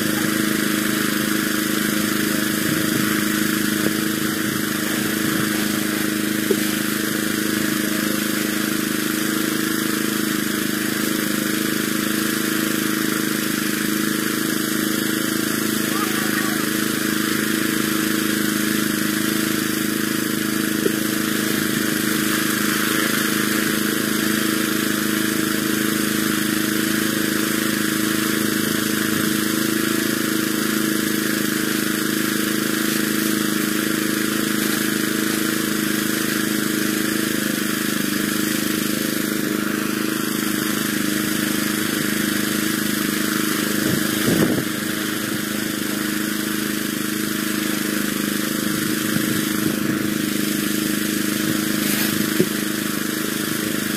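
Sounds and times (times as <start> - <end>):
small gasoline engine running: 0.0 - 53.9.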